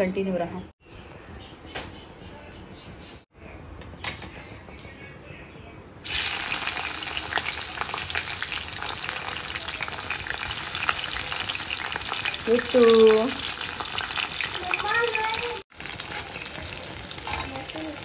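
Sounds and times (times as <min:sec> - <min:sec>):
chillies crackling as they fry: 0:06.0 - 0:18.0
oil sizzling: 0:06.0 - 0:18.0.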